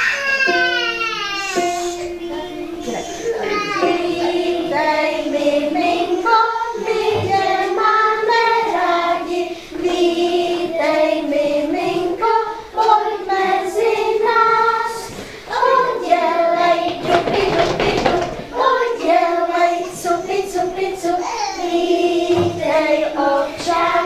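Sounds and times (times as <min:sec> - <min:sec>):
children singing: 0:00.0 - 0:24.0
short breaths: 0:15.1 - 0:15.5.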